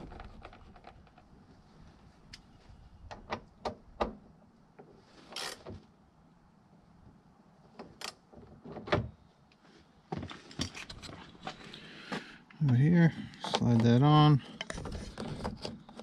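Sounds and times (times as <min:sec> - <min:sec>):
clicks and knocks of door parts: 0:03.1 - 0:04.3.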